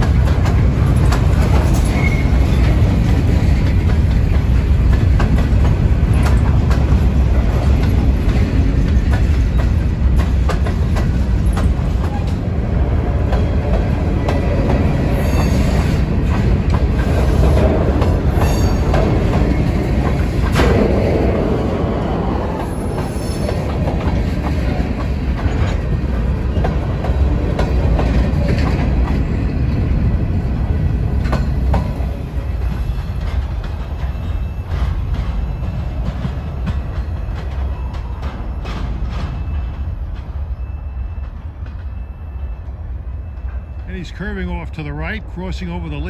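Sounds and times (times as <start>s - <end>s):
wheels clicking over rail joints: 0.0s - 42.4s
train low rumble: 0.0s - 46.0s
wheel squeals: 1.6s - 2.9s, 15.0s - 16.0s, 18.3s - 18.9s.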